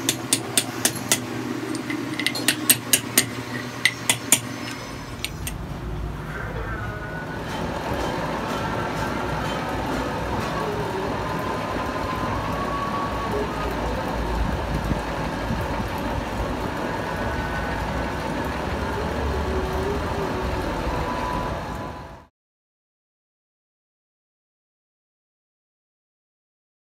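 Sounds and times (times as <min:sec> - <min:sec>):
metal lathe running: 0:00.0 - 0:05.7.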